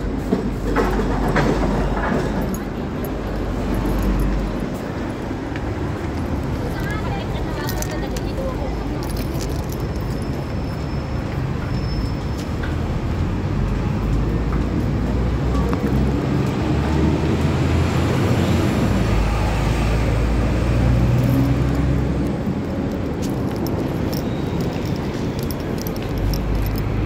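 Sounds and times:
street traffic rush: 0.0 - 27.0
vehicle engine humming: 15.0 - 27.0.

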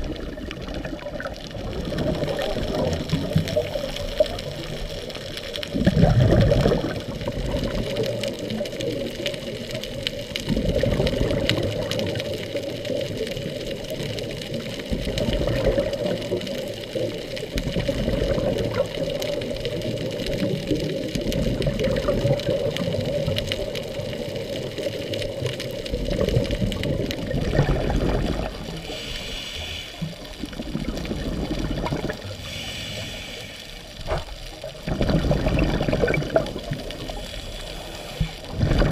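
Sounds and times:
diver exhaling bubbles: 0.0 - 5.1, 5.7 - 8.6, 10.5 - 12.4, 14.9 - 16.5, 17.6 - 19.2, 21.2 - 23.7, 25.9 - 38.9
rushing water: 0.0 - 38.9.

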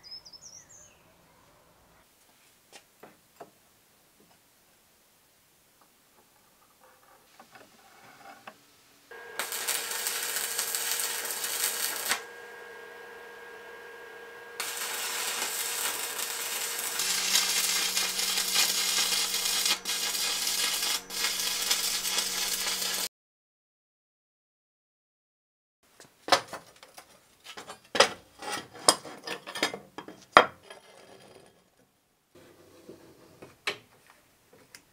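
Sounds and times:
steady hum: 9.1 - 23.1
welding arc crackling and hissing: 9.1 - 23.1.

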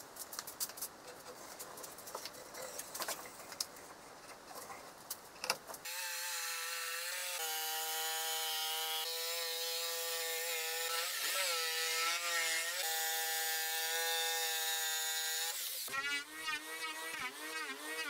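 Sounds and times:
jigsaw cutting wood: 5.8 - 18.0.

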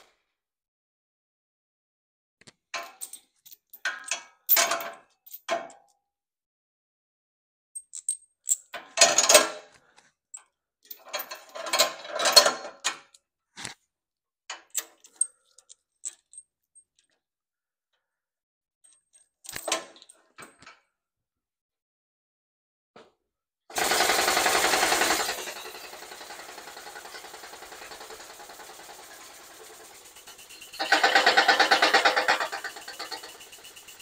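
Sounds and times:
steel chain clinking and rattling: 10.9 - 12.7, 14.7 - 17.1, 23.8 - 34.0.

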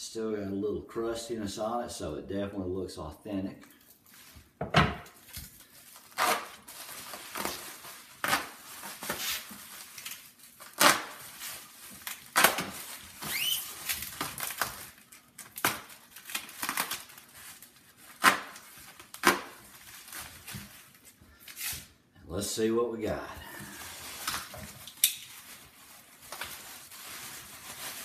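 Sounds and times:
bubble wrap crinkling: 5.2 - 22.0, 23.4 - 28.0.

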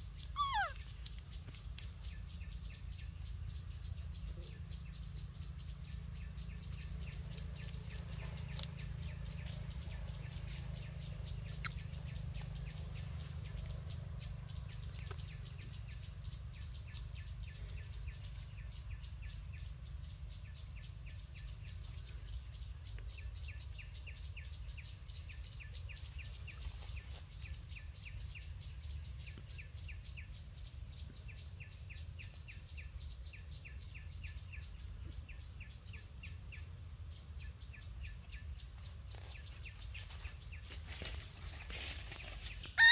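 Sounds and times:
faint high chirping: 0.0 - 5.3, 39.2 - 42.9.

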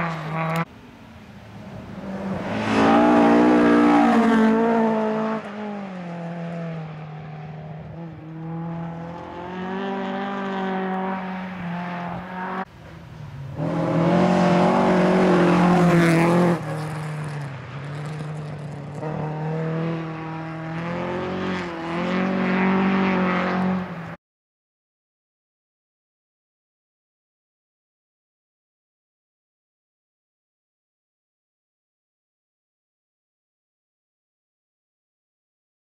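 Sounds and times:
car running past: 0.0 - 24.2
rally car engines accelerating: 0.0 - 24.2.

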